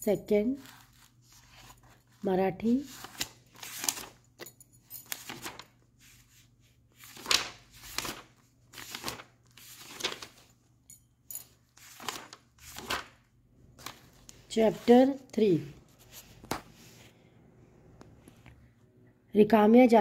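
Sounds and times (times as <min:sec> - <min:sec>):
paper pages turning: 0:00.6 - 0:04.4, 0:05.0 - 0:10.7, 0:11.7 - 0:17.2.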